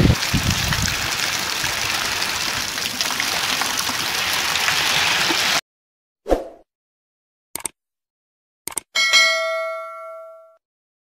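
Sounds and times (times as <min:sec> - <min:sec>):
wind buffeting microphone: 0:00.0 - 0:01.9
heavy rain pouring: 0:00.0 - 0:05.6.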